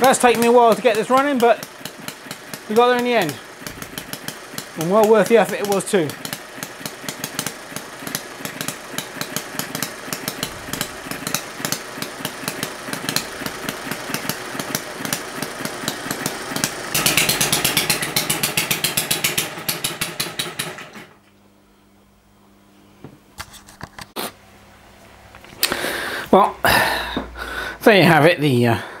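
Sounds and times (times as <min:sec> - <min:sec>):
small model engine running: 0:00.0 - 0:21.1.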